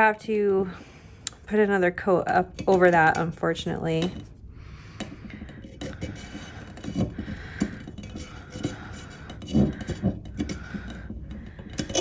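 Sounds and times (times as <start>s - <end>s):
knife scraping metal rim: 5.6s - 12.0s.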